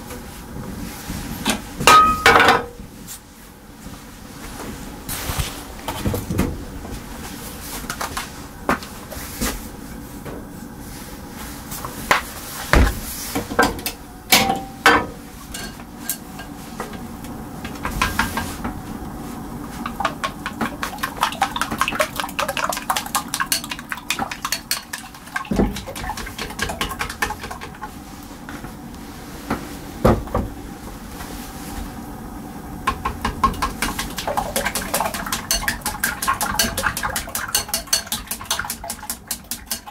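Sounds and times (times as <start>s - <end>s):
cookware and utensils clattering: 13.6s - 16.6s, 19.8s - 27.8s, 33.4s - 39.9s
rapid taps: 19.8s - 27.8s.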